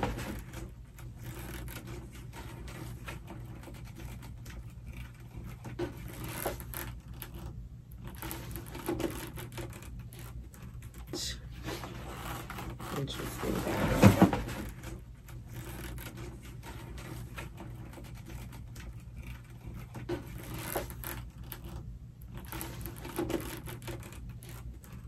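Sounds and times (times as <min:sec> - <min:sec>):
fabric rubbing and rustling: 0:00.0 - 0:25.0.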